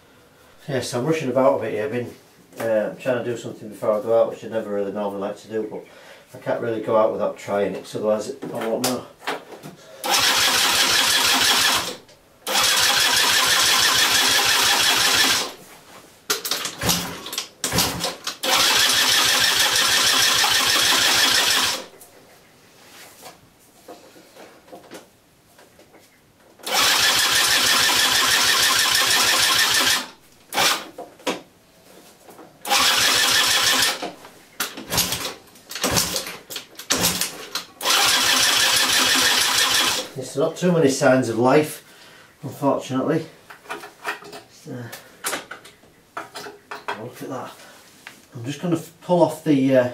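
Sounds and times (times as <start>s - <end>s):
scooter engine cranking: 10.0s - 15.6s, 16.4s - 21.9s, 26.6s - 30.9s, 32.6s - 34.0s, 34.8s - 40.1s.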